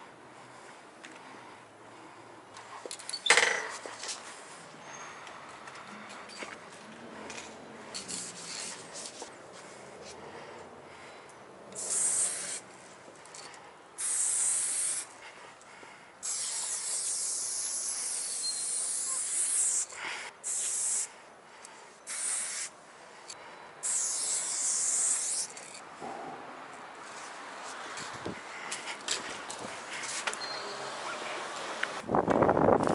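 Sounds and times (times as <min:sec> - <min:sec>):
spray paint can hissing: 0:08.1 - 0:09.2, 0:11.7 - 0:12.6, 0:14.0 - 0:15.1, 0:16.2 - 0:21.2, 0:22.0 - 0:22.7, 0:23.8 - 0:25.8.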